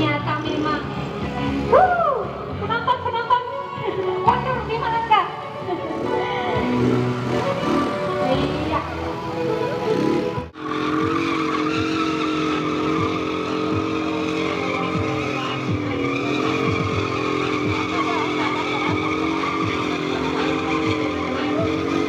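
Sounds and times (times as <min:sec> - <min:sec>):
scooter engine at high revs: 0:05.8 - 0:09.1, 0:09.7 - 0:22.0.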